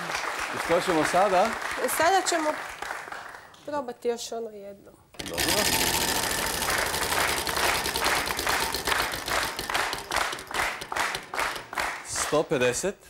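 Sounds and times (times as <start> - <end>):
audience applause: 0.0 - 3.5, 5.3 - 12.4
prize wheel pointer clicking: 5.2 - 11.9.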